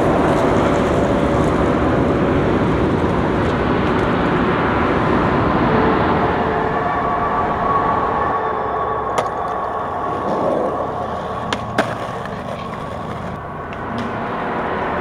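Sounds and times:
street noise: 0:00.0 - 0:15.0
skateboard clacking on concrete: 0:10.2 - 0:14.2.

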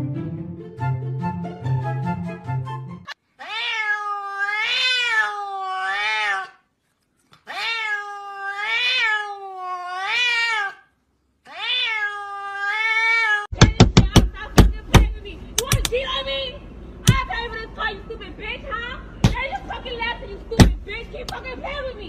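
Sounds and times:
cat meowing: 0:03.4 - 0:06.6, 0:07.4 - 0:10.9, 0:11.5 - 0:13.5.

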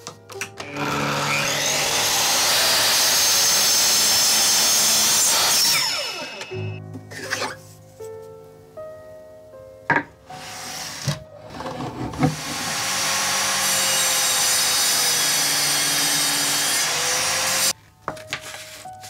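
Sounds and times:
table saw cutting wood: 0:00.6 - 0:07.6, 0:10.3 - 0:17.7.

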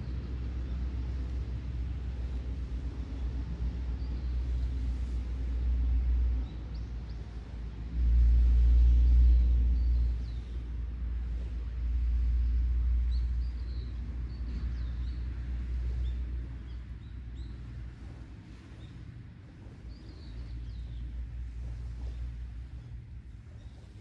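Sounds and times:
low rumble: 0:00.0 - 0:24.0
small birds chirping: 0:19.6 - 0:22.3.

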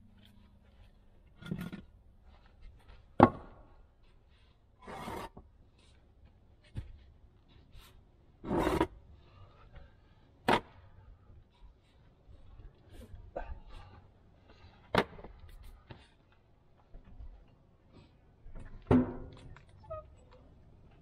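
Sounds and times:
concrete scraping on concrete: 0:04.8 - 0:05.4, 0:08.4 - 0:09.0.

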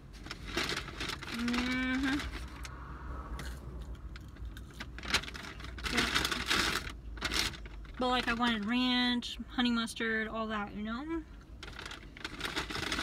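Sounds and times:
food packaging rustling: 0:00.0 - 0:02.6, 0:04.2 - 0:08.7, 0:11.6 - 0:13.0.

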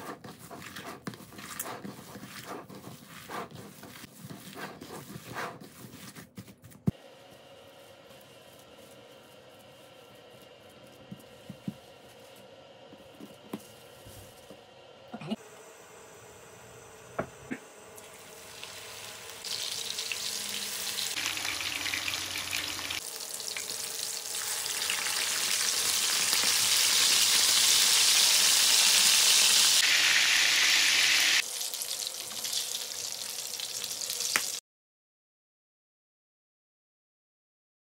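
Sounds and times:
patties sizzling in oil: 0:18.0 - 0:34.6.

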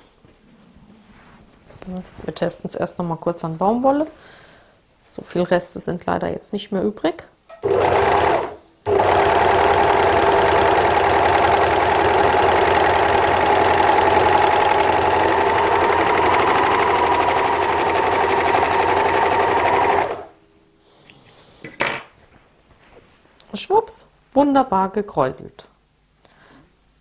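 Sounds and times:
overlock sewing machine running: 0:07.6 - 0:20.4.

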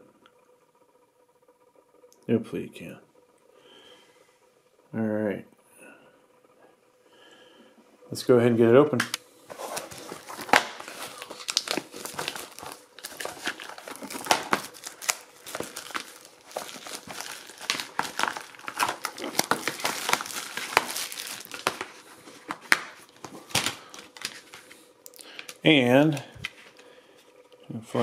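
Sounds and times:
plastic wrap crinkling: 0:09.4 - 0:26.8.

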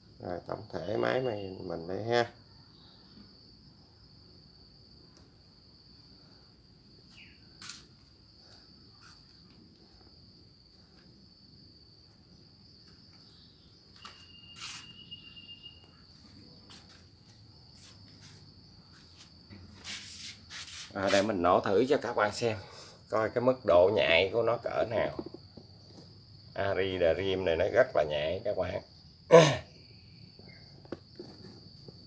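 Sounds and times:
insect chirring: 0:00.0 - 0:32.0.

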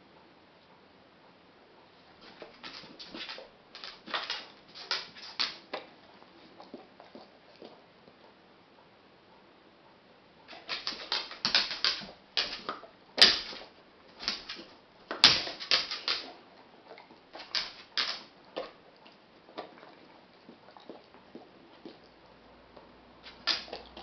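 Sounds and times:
dog crunching dry noodles: 0:02.2 - 0:05.8, 0:10.5 - 0:22.0.

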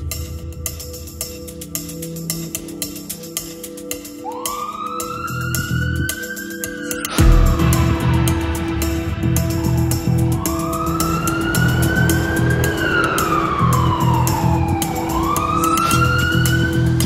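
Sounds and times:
music with steady beat: 0:00.0 - 0:17.0
ambulance siren wailing: 0:04.0 - 0:17.0.

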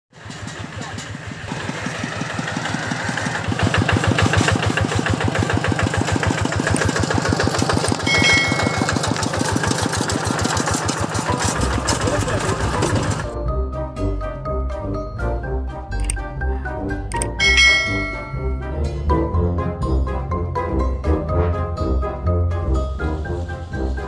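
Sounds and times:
diesel engine chugging: 0:00.1 - 0:13.4, 0:16.3 - 0:20.0
brief high-pitched tone: 0:08.0 - 0:09.3, 0:17.2 - 0:18.7.

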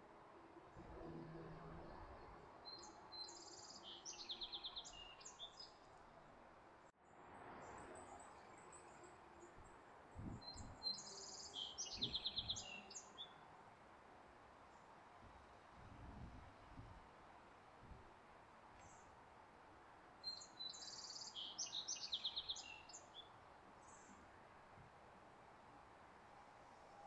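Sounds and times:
songbird singing with trill: 0:02.7 - 0:05.8, 0:10.3 - 0:13.4, 0:20.2 - 0:24.2.

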